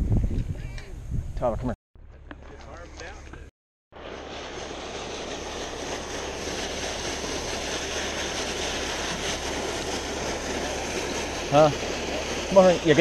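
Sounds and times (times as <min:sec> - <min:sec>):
splashing water: 0:04.0 - 0:13.0.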